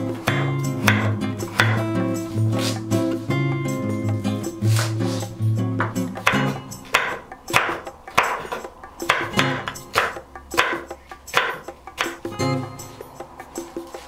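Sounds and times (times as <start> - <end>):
knife chopping on wooden board: 0.1 - 2.0, 4.7 - 12.4.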